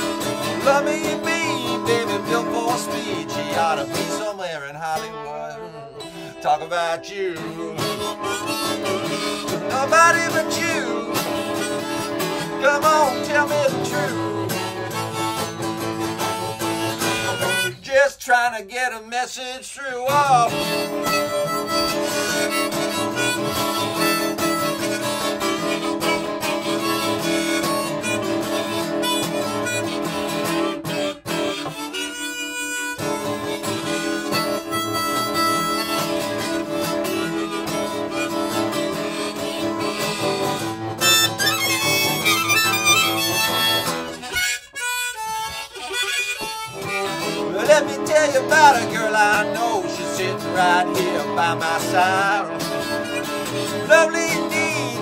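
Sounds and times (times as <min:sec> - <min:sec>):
harmonica playing: 0:00.0 - 0:18.1, 0:20.1 - 0:55.0
strummed acoustic guitar: 0:00.0 - 0:55.0.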